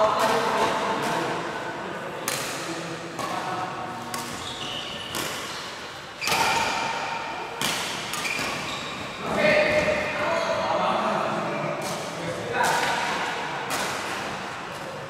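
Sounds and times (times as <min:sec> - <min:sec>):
rackets hitting shuttlecock: 0:02.2 - 0:10.2, 0:11.8 - 0:15.0.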